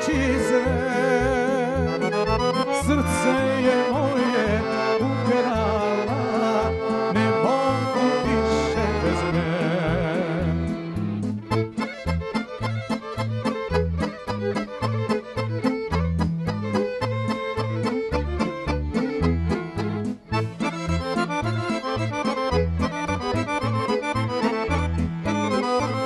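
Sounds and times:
accordion melody: 0.0 - 26.0
violins: 0.0 - 26.0
drum and bass beat: 10.8 - 26.0.

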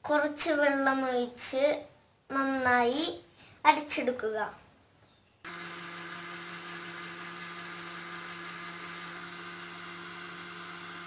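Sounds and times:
mixer grinder motor whirring: 5.5 - 11.0.

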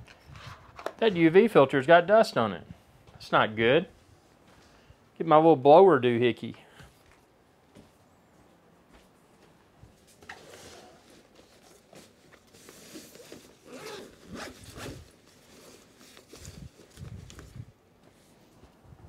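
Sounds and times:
handling rustle: 9.3 - 18.8.

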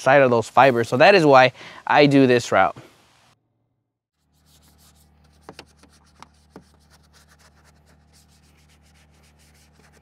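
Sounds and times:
low steady hum: 4.2 - 10.0.

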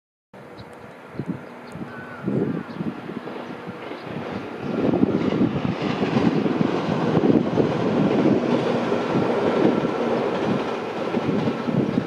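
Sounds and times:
train rumbling past: 0.4 - 12.0
wheels clattering on rails: 2.7 - 12.0.

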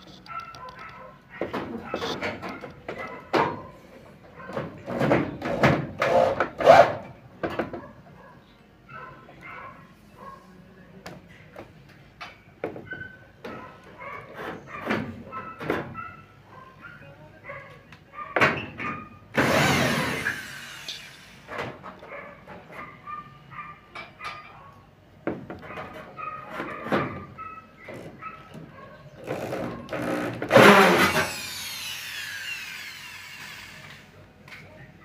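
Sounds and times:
cordless drill bursts: 19.4 - 21.5, 29.2 - 34.1.

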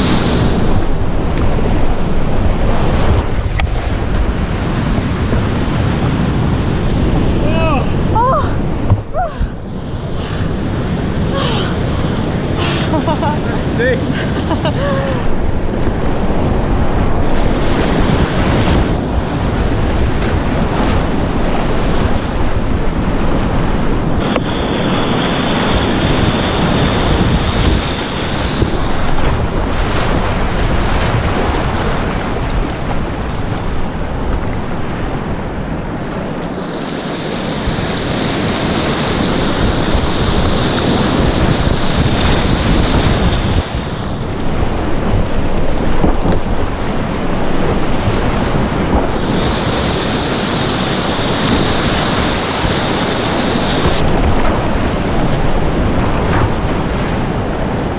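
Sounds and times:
whitewater rapids rushing: 0.0 - 57.9.

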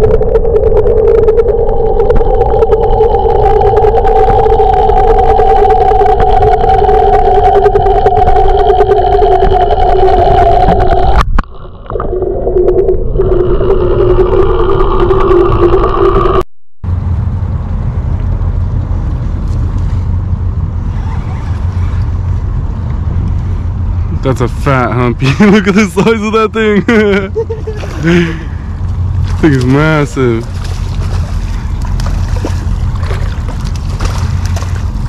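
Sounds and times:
electric trolling motor whining: 0.0 - 11.2
low steady rumble above water: 0.0 - 35.0.

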